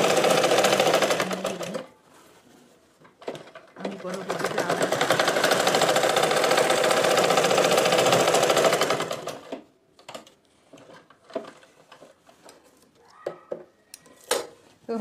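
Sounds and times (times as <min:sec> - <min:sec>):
sewing machine stitching: 0:00.0 - 0:01.9, 0:03.2 - 0:12.1.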